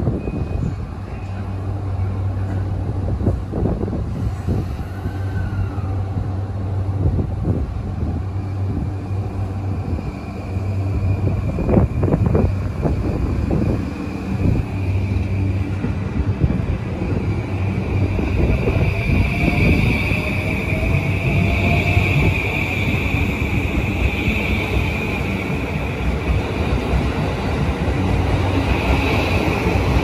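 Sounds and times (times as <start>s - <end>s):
electric train hum: 0.0s - 30.0s
high brake squeal: 0.1s - 1.0s.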